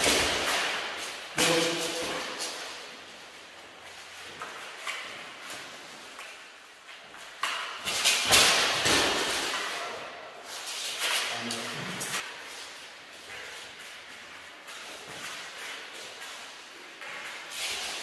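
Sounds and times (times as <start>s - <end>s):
sharp knocks echoing: 0.0s - 2.8s.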